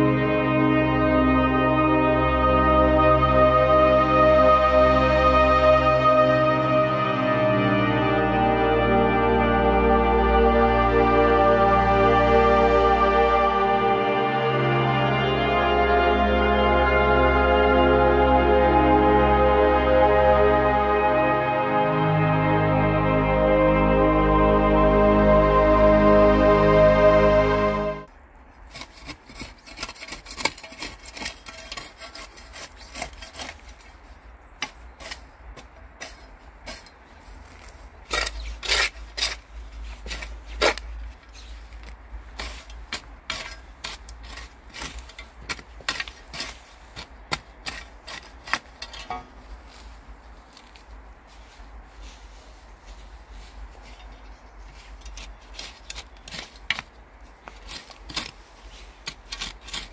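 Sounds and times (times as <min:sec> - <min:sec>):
hand scoop scraping soil: 0:28.6 - 0:59.9.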